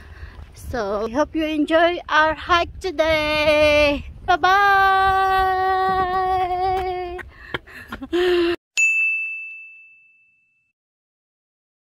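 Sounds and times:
notification bell ding: 8.8s - 10.7s.

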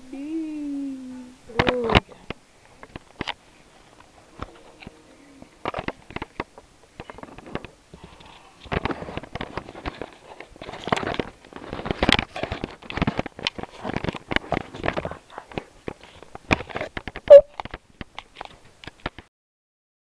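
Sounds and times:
irregular clicks taps and rustles: 5.6s - 19.3s.

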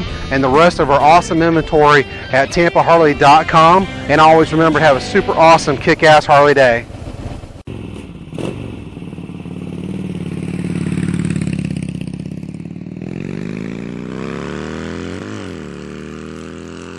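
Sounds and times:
motorcycle engine revving: 6.9s - 16.9s.

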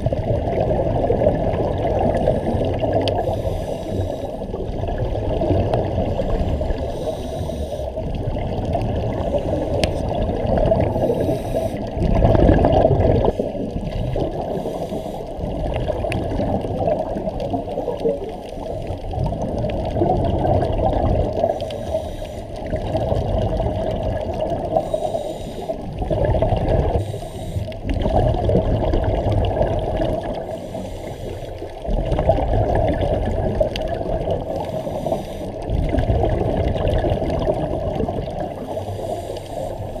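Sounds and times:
diver exhaled bubbles gurgling: 0.0s - 40.0s.

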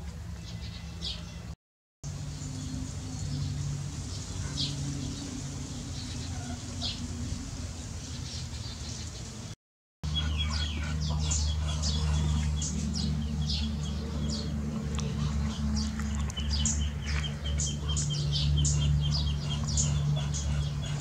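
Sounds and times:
small birds chirping: 2.1s - 21.0s
steady low hum: 2.1s - 21.0s
fledgling high calls: 4.1s - 7.2s.

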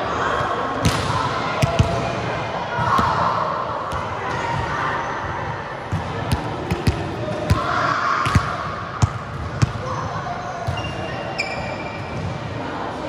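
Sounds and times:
volleyball slaps and thuds: 0.8s - 2.2s, 5.9s - 9.8s.

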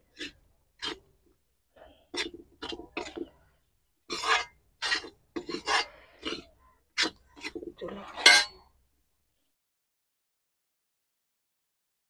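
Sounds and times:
spatula scraping a pan: 0.0s - 1.2s, 1.8s - 3.5s, 4.1s - 8.6s.

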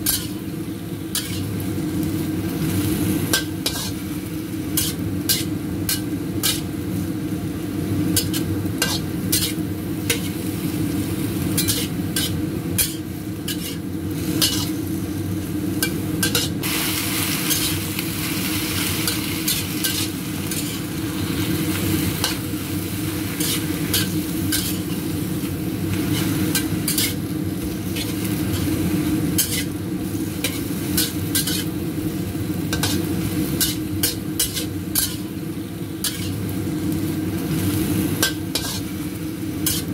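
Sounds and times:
metal spatula scraping a wok: 0.0s - 0.4s, 1.1s - 1.6s, 2.8s - 4.1s, 4.7s - 6.7s, 8.1s - 10.5s, 11.5s - 15.0s, 15.8s - 25.3s, 25.9s - 31.8s, 32.7s - 35.4s, 36.0s - 36.5s, 37.6s - 39.0s, 39.6s - 39.9s
lettuce sizzling in a wok: 0.0s - 39.9s.

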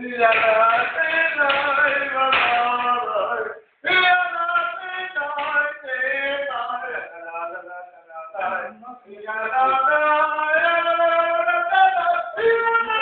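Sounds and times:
person singing long notes: 8.4s - 13.0s.

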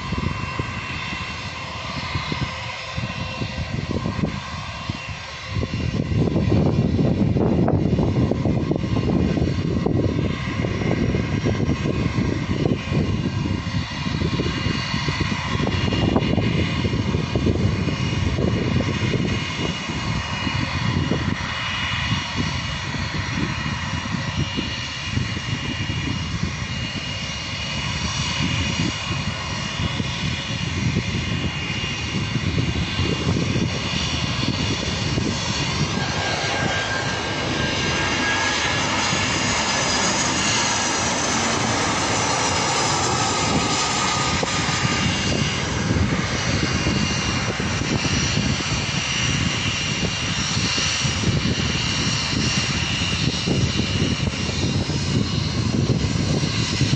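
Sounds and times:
jet engines roaring with whine: 0.0s - 56.9s.

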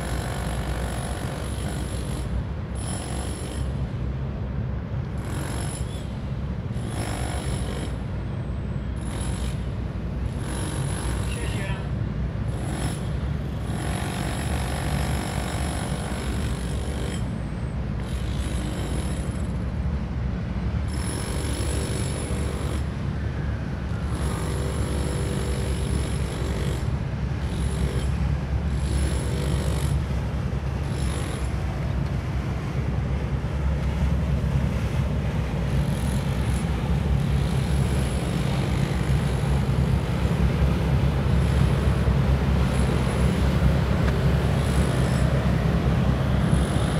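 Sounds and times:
boat engines rumbling: 0.0s - 46.9s
moving water: 22.0s - 46.9s.

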